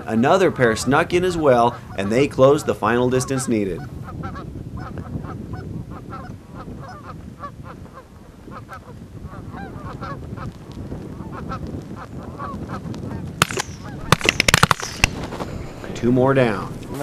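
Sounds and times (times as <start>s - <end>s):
geese honking: 0.0s - 10.5s
wind rumble: 0.0s - 17.0s
shotgun report: 13.4s - 16.0s.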